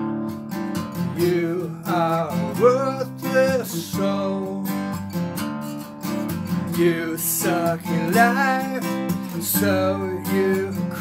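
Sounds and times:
acoustic guitar strumming: 0.0s - 11.0s
man singing: 1.0s - 5.2s, 6.5s - 11.0s.

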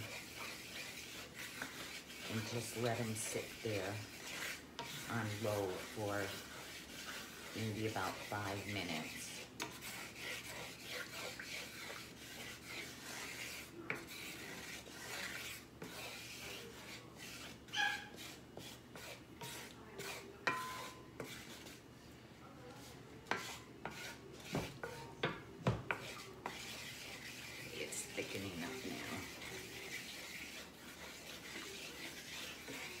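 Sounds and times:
spatula scraping skillet: 0.0s - 33.0s
spatula knocking against pan: 20.4s - 20.9s.

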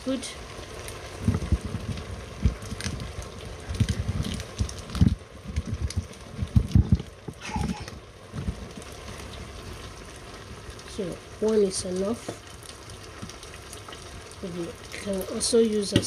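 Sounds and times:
pots bubbling on stove: 0.0s - 16.0s
low thumps and knocks: 1.2s - 8.9s.

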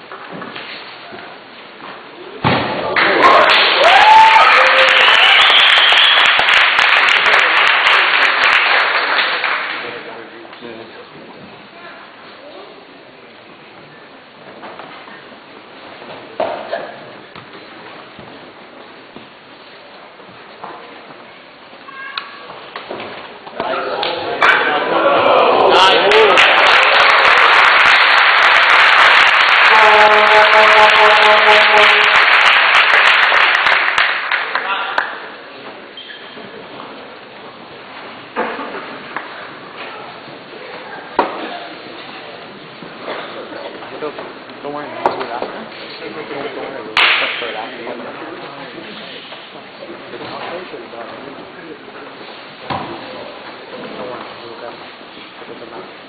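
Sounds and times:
crowd cheering and applauding: 3.0s - 9.8s, 24.0s - 35.2s
steady horn-like tone: 29.6s - 32.3s.

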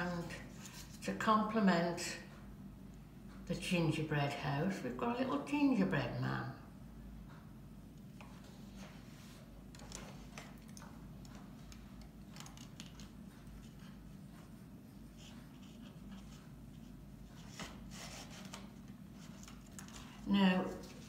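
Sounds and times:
low room hum: 0.0s - 21.0s
ribbon rustling and clicking: 9.7s - 14.5s, 15.2s - 20.2s.

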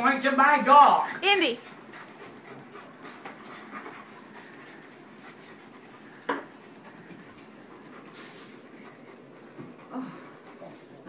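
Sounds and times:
dog panting: 1.2s - 11.0s.

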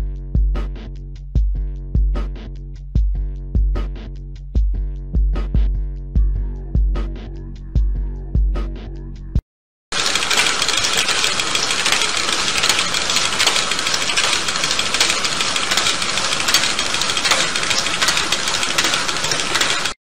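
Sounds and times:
motor and plastic gears rattling: 9.9s - 20.0s.

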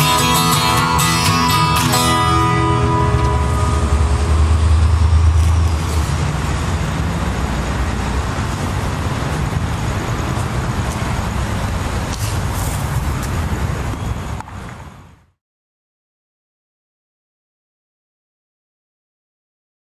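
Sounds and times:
city traffic rumble: 0.0s - 15.4s.

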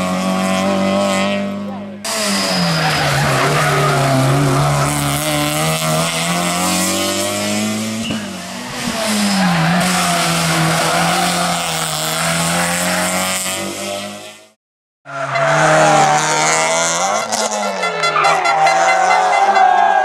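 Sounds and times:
rally car engine revving: 0.0s - 20.0s
tyre squeal: 2.1s - 5.3s.

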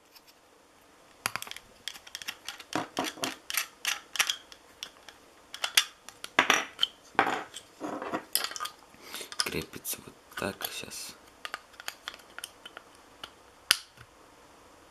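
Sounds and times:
hard plastic clicking and scraping: 1.3s - 6.4s, 10.6s - 13.4s.

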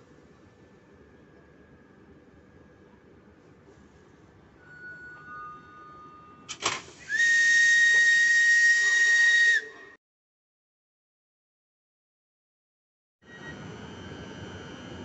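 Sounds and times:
whistle blown: 7.1s - 9.8s.

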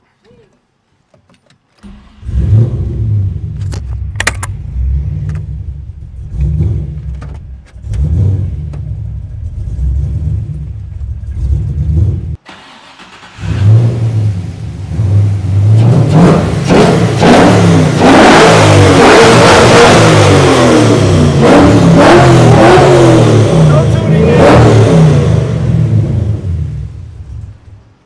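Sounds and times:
car engine uneven idle: 4.1s - 12.4s.

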